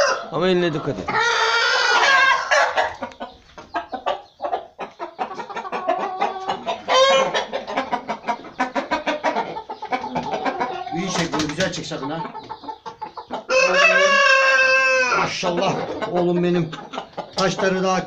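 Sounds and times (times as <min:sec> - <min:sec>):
rooster calling: 0:00.0 - 0:04.2, 0:05.2 - 0:11.2, 0:13.3 - 0:16.1
rapid clucking: 0:00.5 - 0:14.4, 0:15.1 - 0:18.0.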